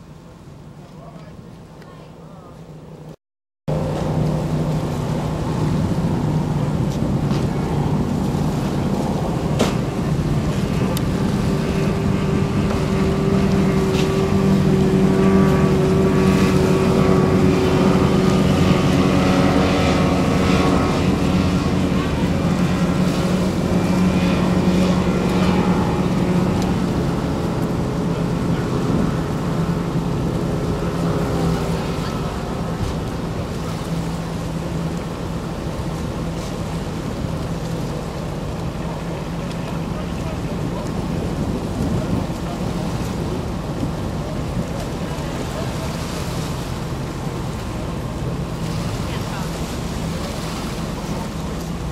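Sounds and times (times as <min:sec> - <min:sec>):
boat engines droning: 0:00.0 - 0:51.9.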